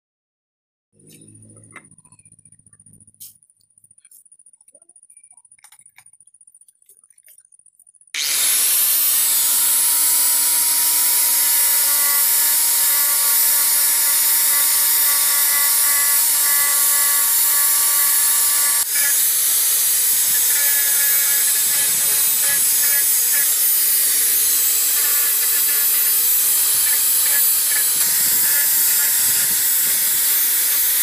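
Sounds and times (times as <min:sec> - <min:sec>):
angle grinder grinding wood: 0:08.2 - 0:31.0.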